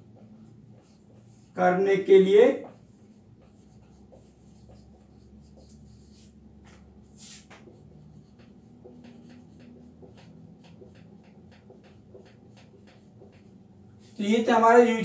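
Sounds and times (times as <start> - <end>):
marker writing on whiteboard: 0.0 - 15.0.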